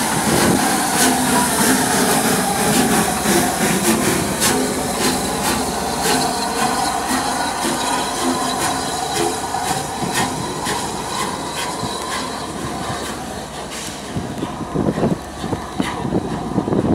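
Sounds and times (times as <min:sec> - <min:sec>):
steady squeal: 0:00.0 - 0:16.9
train running noise: 0:00.0 - 0:16.9
train wheels clicking: 0:00.0 - 0:16.9.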